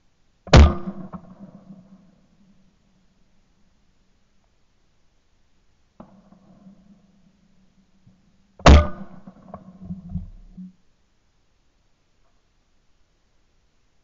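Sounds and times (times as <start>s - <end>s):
shotgun shot with echo: 0.5s - 2.0s, 8.6s - 9.7s.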